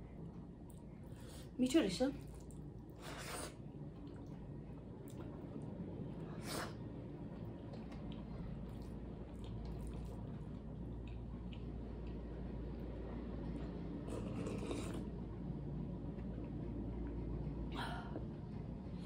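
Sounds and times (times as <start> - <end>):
chewing and lip smacking: 7.4 - 12.2.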